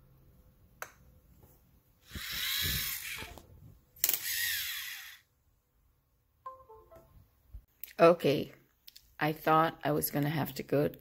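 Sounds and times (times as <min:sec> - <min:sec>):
small motor whirring: 0:02.0 - 0:03.4, 0:04.0 - 0:05.3.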